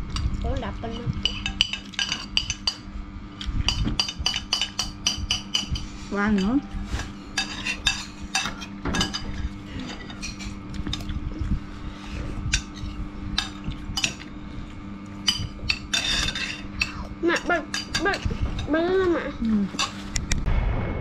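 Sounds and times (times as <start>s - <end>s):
steady low hum: 0.0s - 21.0s
spoons clinking against bowls: 1.2s - 2.9s, 3.7s - 11.0s, 12.5s - 14.3s, 15.2s - 18.8s, 19.7s - 20.0s.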